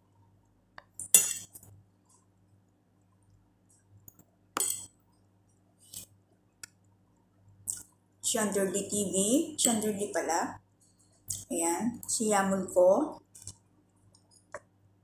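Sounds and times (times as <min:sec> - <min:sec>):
fork clinking on ceramic plate: 0:01.0 - 0:01.6.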